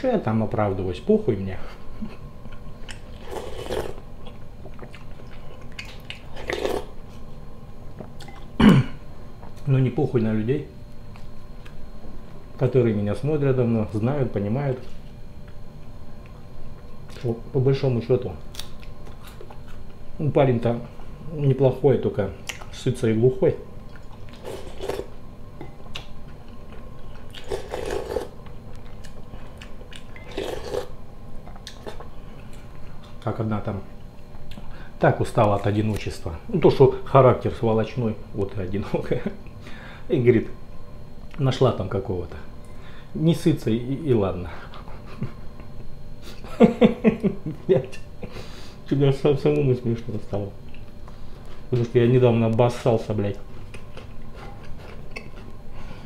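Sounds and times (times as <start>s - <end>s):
chewing and mouth clicks: 2.5s - 6.9s, 8.1s - 8.5s, 23.9s - 25.1s, 25.8s - 33.2s
man slurping soup: 3.2s - 4.0s, 24.4s - 25.1s, 27.4s - 28.3s, 30.3s - 30.9s.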